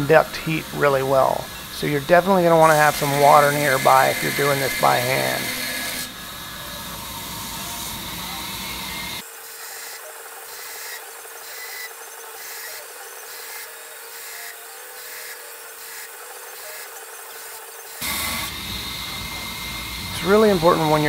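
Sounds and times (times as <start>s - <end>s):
pulsing hiss: 0.0s - 9.2s, 17.9s - 21.0s
steady hum: 0.0s - 9.2s, 18.0s - 21.0s
metal grinding on abrasive grinder: 0.0s - 21.0s.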